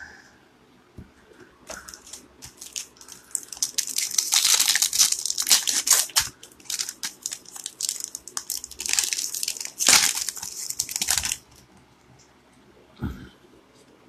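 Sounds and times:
foil wrapper tearing and crinkling: 1.7 - 11.6.

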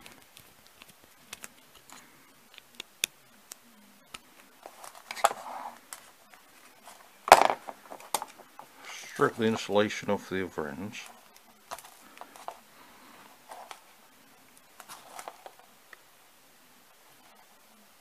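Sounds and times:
rustle of handling: 10.8 - 15.8.

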